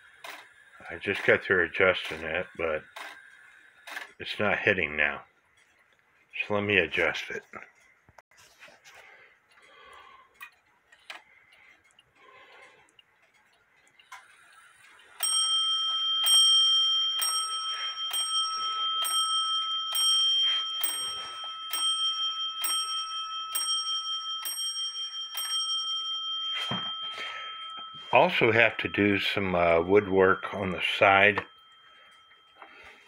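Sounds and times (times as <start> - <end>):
faint clock clicks: 9.0 - 16.4
clock bell striking: 15.2 - 33.0.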